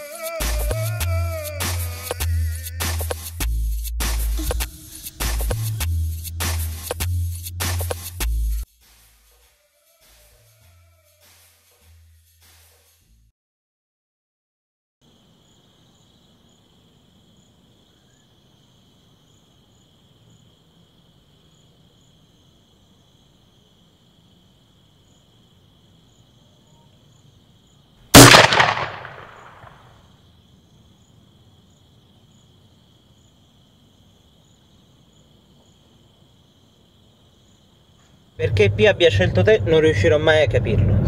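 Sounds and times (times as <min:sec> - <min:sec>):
high insect chirring: 0:00.0 - 0:12.5, 0:28.9 - 0:38.4
gunshot echoing: 0:28.2 - 0:29.9.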